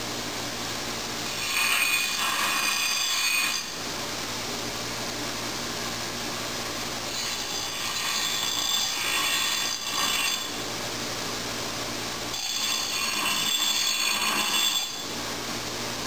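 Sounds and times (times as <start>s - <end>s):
bench grinder grinding steel: 1.3s - 3.8s, 7.1s - 10.6s, 12.3s - 15.1s.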